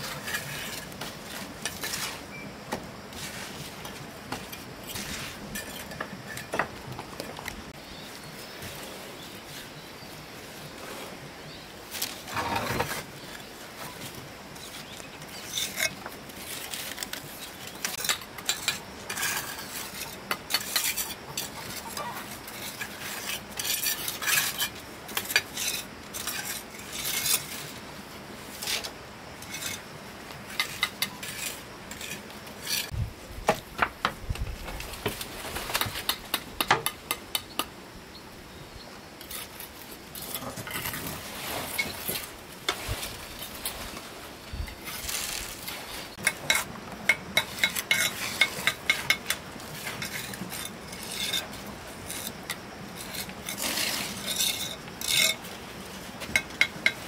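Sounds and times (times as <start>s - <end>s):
hard objects clinking and scraping: 44.6s - 55.6s.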